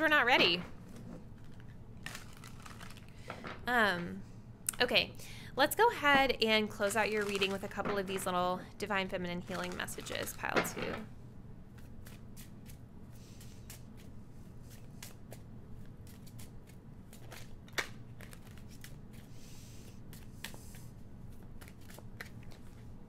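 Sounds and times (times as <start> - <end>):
cards being shuffled: 0.8 - 3.6, 11.7 - 12.8, 13.4 - 19.3, 20.1 - 22.9.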